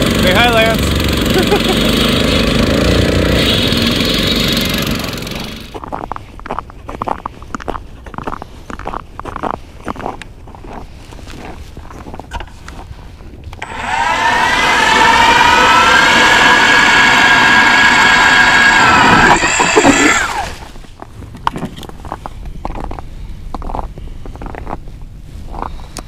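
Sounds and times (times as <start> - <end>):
ice auger motor whine: 0.0 - 5.8, 13.6 - 20.8.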